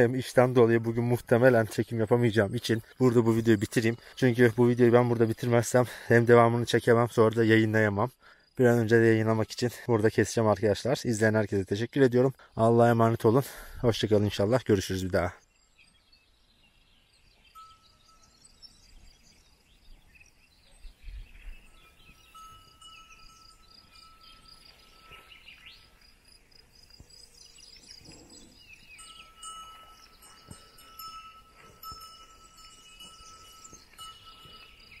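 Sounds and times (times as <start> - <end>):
birds chirping: 0.0 - 35.0
faint bell ringing: 17.6 - 18.5, 22.2 - 25.3, 28.9 - 35.0.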